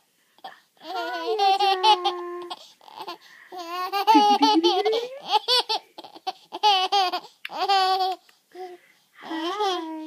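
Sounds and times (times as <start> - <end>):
baby giggling: 0.8 - 8.2.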